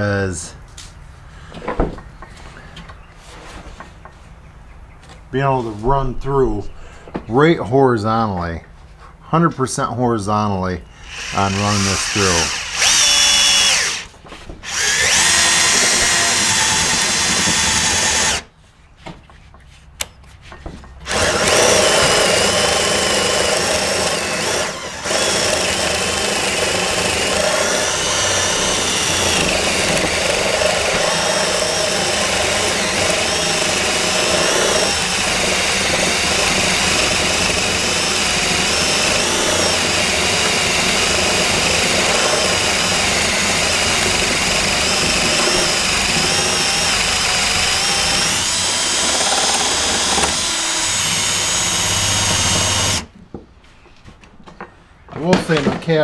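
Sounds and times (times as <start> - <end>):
cordless drill boring into wood: 11.0 - 18.5, 21.0 - 53.1.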